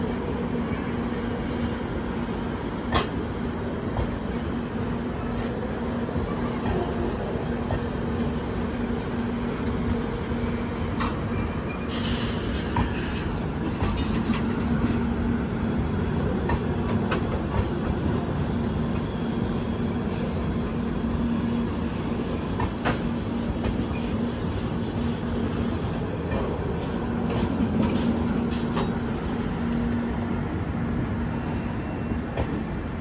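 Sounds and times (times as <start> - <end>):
train coaches rolling on rails: 0.0 - 33.0
wheels clicking over rail joints: 10.9 - 15.2, 21.9 - 31.5.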